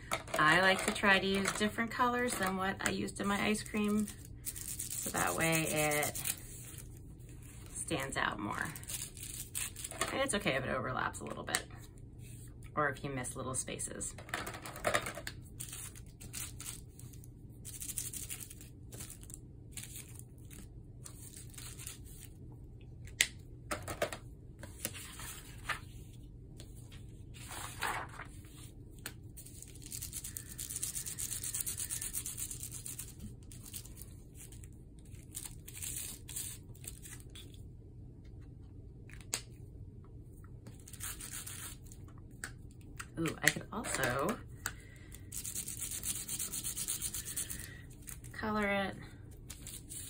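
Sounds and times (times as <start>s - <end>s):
markers scrubbing over bubble wrap: 0.4s - 6.8s, 29.5s - 34.0s, 45.3s - 47.7s.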